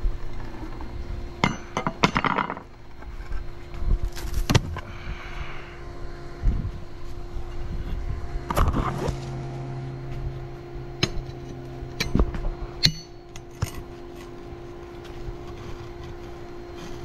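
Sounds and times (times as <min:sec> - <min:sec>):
steady low hum: 0:00.0 - 0:17.0
pick striking mortar and stone: 0:11.0 - 0:11.4, 0:12.0 - 0:13.8.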